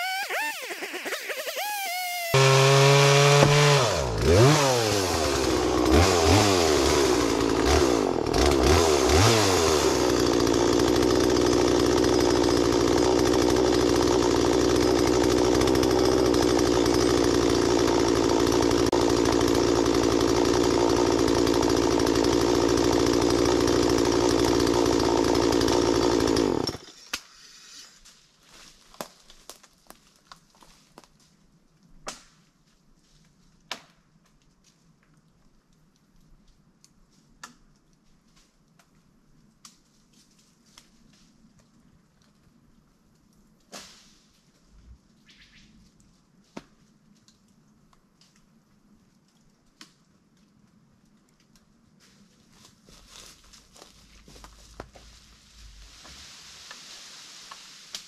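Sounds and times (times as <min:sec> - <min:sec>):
chainsaw revving: 0:00.0 - 0:27.0.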